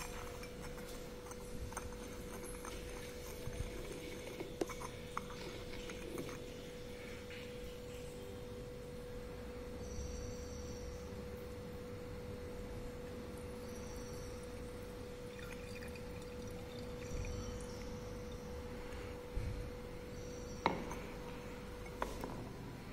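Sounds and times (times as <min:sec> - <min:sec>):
steady humming tone: 0:00.0 - 0:22.9
liquid pouring softly: 0:14.6 - 0:18.6.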